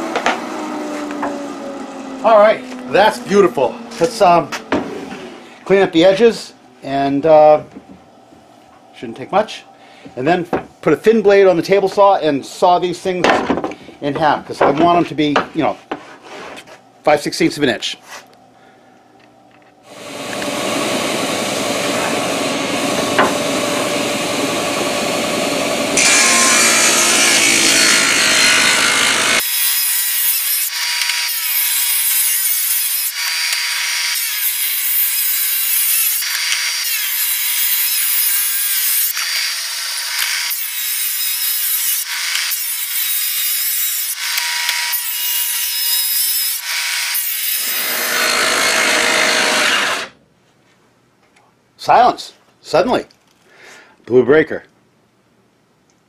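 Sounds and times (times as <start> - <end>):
table saw ripping wood: 0.0 - 5.4, 19.9 - 50.2
power tool running: 0.0 - 5.6, 19.8 - 50.2.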